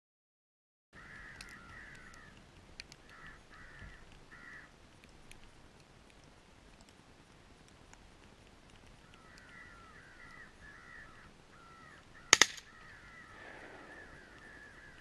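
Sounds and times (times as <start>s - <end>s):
crow cawing: 1.0s - 2.4s, 3.0s - 4.7s, 9.0s - 15.0s
faint ticks: 1.0s - 11.0s.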